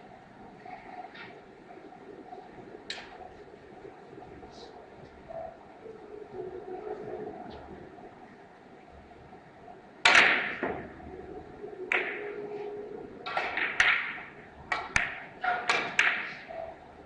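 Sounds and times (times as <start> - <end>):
billiard balls clacking: 11.9 - 12.4, 13.2 - 16.5.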